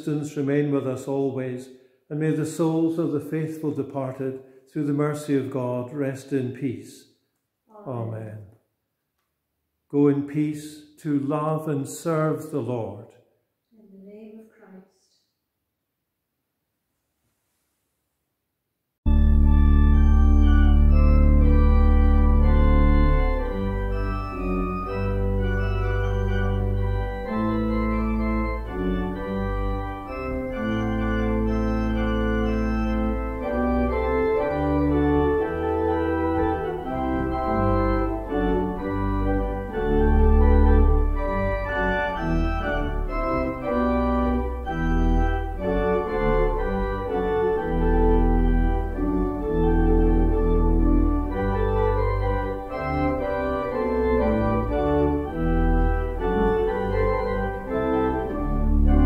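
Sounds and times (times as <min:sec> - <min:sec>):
pipe organ playing: 0:00.0 - 0:06.7, 0:19.1 - 0:59.0.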